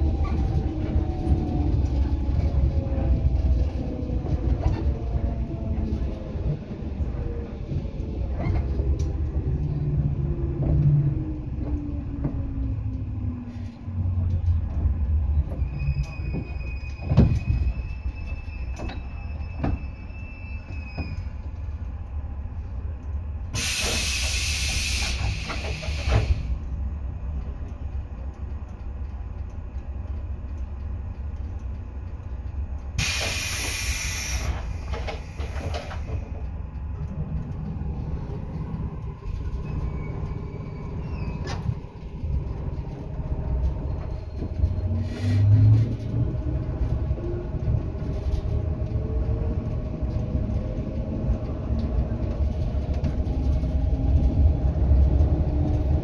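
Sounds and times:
train interior rumble: 0.0 - 56.0
air hiss bursts: 23.6 - 26.5, 33.0 - 36.0.

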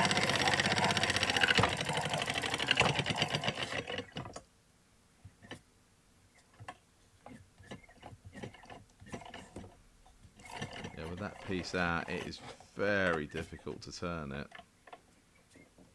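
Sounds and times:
hand-cranked machine rattling: 0.0 - 4.4, 7.3 - 9.7, 10.4 - 13.8.

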